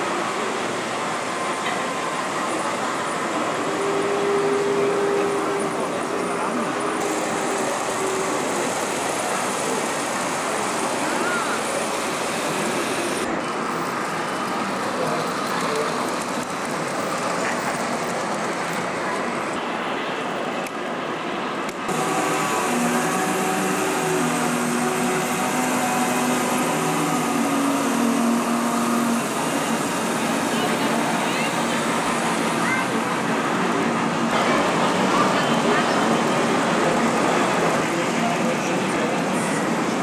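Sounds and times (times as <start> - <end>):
many voices: 0.0 - 40.0
model steam locomotives running: 0.0 - 40.0
steady held tones: 21.9 - 33.2.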